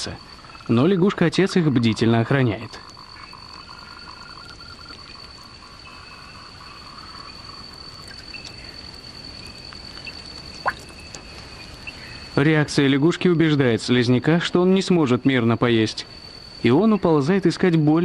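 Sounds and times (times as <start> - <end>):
frogs calling: 0.0 - 18.0
high-pitched insect trill: 0.0 - 18.0
faint clicks: 8.0 - 11.5.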